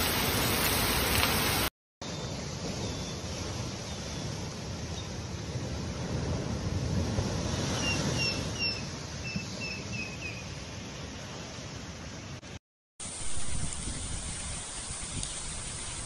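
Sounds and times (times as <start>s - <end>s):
storm surf washing over seawall: 2.5s - 9.5s.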